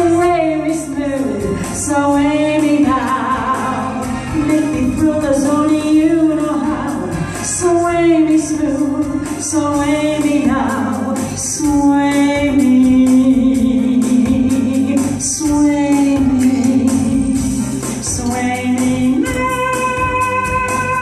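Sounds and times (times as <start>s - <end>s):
woman singing: 0.0s - 21.0s
backing track with percussion beat: 8.4s - 21.0s.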